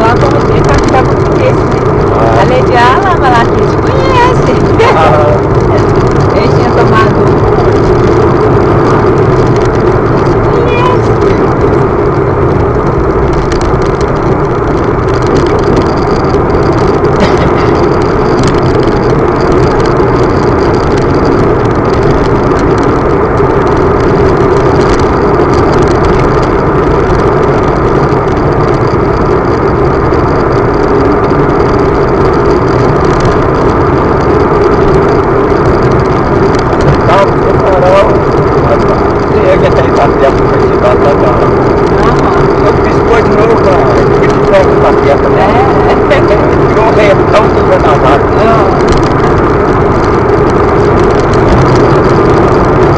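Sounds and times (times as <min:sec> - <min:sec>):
vehicle engine and wind noise: 0:00.0 - 0:52.9.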